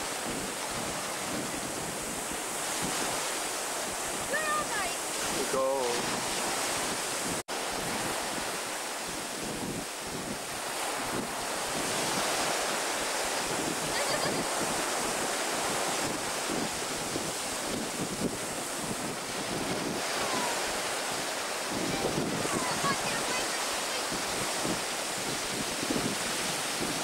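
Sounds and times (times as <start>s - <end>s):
surf breaking on rocks: 0.0s - 27.0s
wind buffeting microphone: 0.0s - 27.0s.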